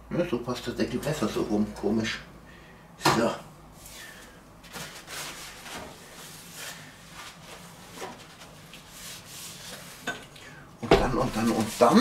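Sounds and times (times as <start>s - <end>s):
paper towel rubbing on glass: 4.8s - 10.0s, 11.1s - 12.0s.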